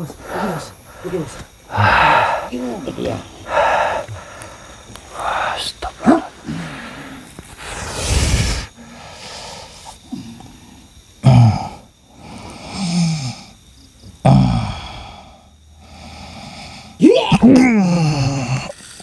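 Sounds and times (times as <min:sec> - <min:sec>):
men grunting and straining: 0:00.0 - 0:08.8, 0:11.2 - 0:13.6, 0:14.2 - 0:15.3, 0:17.0 - 0:19.0
noisy rush of breath: 0:00.0 - 0:13.7, 0:14.6 - 0:17.0.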